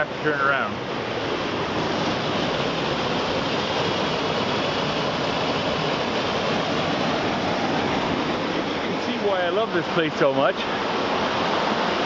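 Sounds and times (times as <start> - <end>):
stream rushing over rocks: 0.0 - 12.0.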